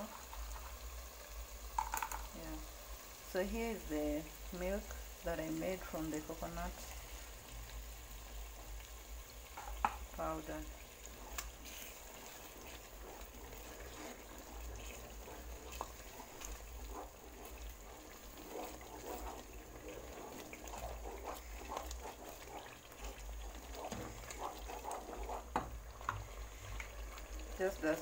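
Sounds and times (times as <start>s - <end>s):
sauce sloshing in a pan: 4.4s - 28.0s
spoon knocking against pan: 9.6s - 10.1s.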